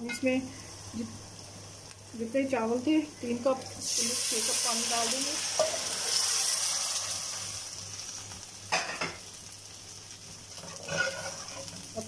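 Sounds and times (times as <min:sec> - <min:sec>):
masala sizzling in a pot: 0:00.0 - 0:12.0.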